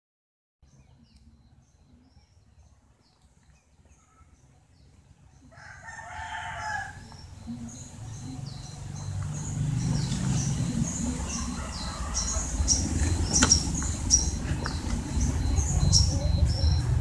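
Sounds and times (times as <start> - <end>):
small birds chirping: 0.6 - 17.0
rooster crowing: 5.5 - 7.2, 11.0 - 13.0
low rumble: 7.2 - 17.0.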